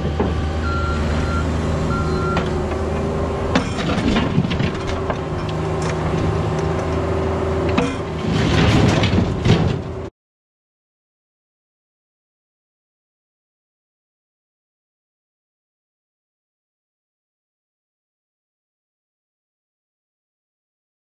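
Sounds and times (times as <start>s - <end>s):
excavator diesel engine whine: 0.0s - 10.1s.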